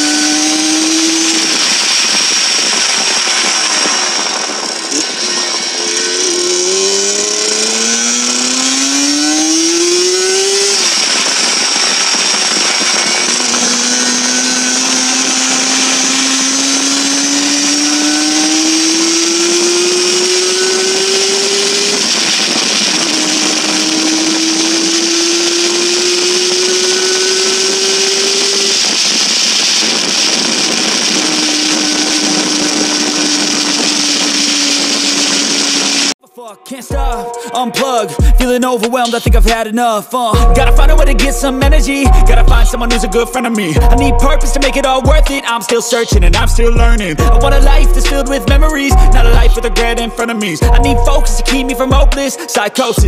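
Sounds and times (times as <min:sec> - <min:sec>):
motorcycle engine accelerating: 0:00.0 - 0:36.2, 0:40.3 - 0:52.6
wind and road noise: 0:00.0 - 0:36.2.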